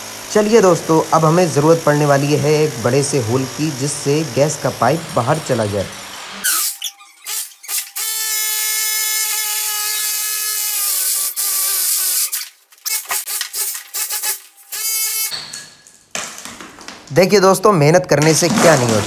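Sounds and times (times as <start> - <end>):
electric drill boring brick: 0.0 - 15.4.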